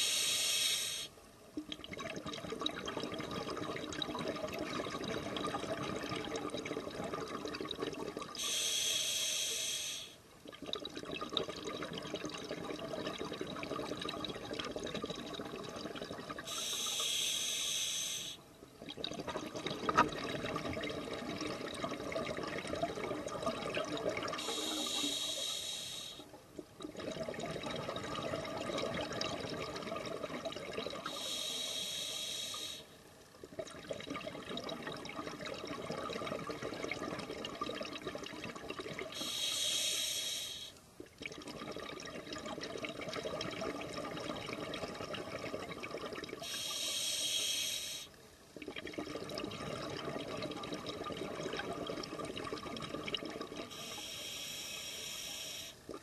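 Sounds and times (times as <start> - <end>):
regulator hissing draw: 0.0 - 1.1, 24.4 - 26.2, 39.2 - 40.7, 46.5 - 48.1, 53.8 - 55.8
streams of bubbles crackling: 0.0 - 56.0.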